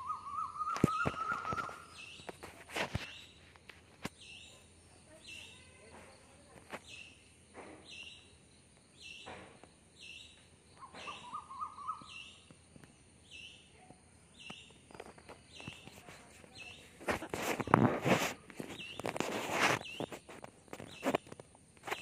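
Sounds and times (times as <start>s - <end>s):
bird calling high note: 10.8s - 12.2s
loud rustling near microphone: 14.9s - 22.0s.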